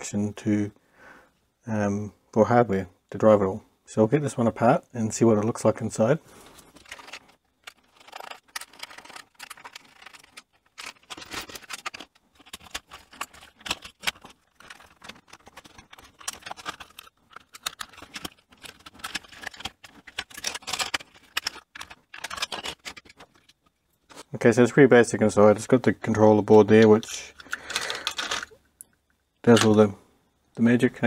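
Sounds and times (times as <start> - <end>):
hard plastic clicks and rattles: 6.7 - 23.8, 26.7 - 29.9.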